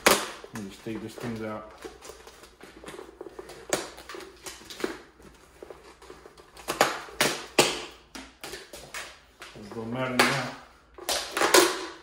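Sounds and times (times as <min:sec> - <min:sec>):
plastic and foam crackling: 0:00.0 - 0:07.2.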